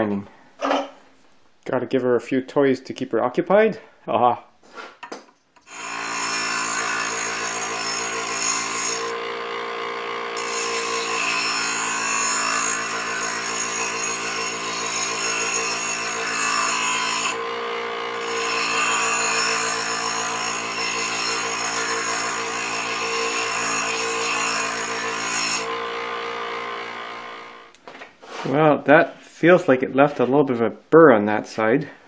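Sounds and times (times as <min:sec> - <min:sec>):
steel grinding on stone: 0:05.7 - 0:09.5, 0:10.2 - 0:25.9
grinder motor hum: 0:05.7 - 0:27.8.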